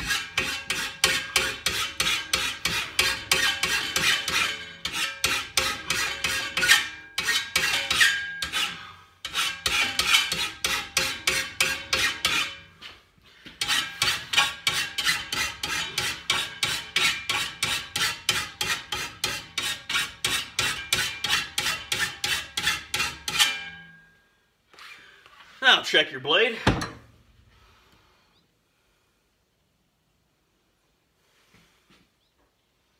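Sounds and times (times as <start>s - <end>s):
file strokes on steel blade: 0.0s - 12.6s, 13.5s - 23.7s.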